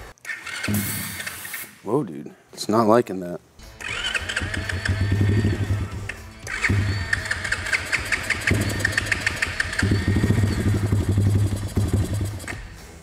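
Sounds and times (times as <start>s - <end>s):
motorbike engine running rough: 3.8s - 12.7s.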